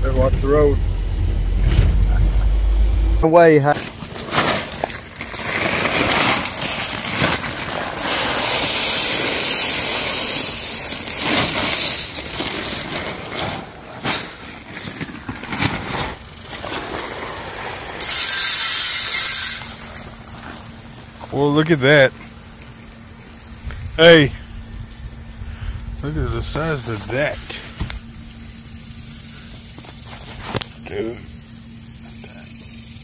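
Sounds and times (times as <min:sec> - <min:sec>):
corn kernels pouring into trough: 0:04.2 - 0:12.9.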